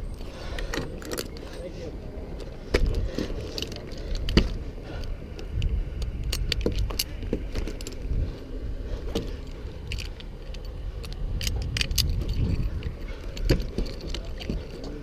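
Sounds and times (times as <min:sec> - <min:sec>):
steady low rumble: 0:00.0 - 0:15.0
metal hooks clinking and jangling: 0:06.2 - 0:08.1, 0:09.2 - 0:15.0.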